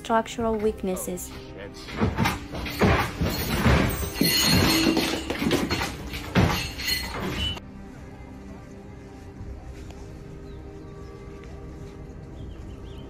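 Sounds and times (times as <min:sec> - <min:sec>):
room rattling and creaking: 0:00.5 - 0:07.6.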